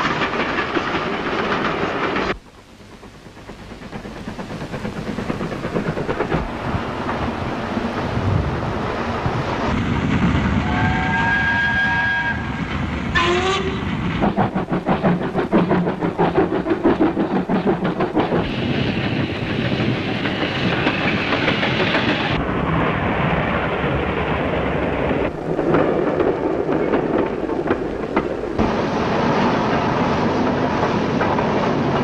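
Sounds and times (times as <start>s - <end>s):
train wheels clattering on rails: 0.0s - 32.0s.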